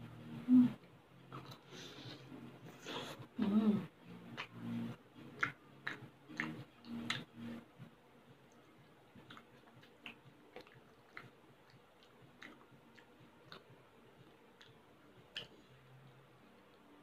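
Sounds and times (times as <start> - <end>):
person chewing: 9.2 - 13.7.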